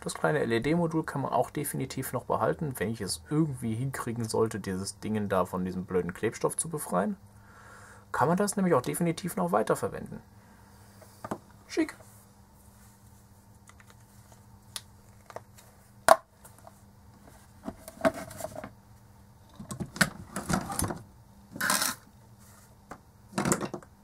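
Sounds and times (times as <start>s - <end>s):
hard objects scraping and clattering: 17.2s - 18.8s, 19.5s - 22.7s.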